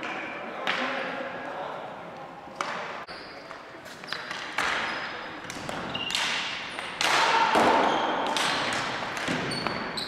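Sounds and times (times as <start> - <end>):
sneakers squeaking: 3.0 - 7.0, 7.8 - 10.0.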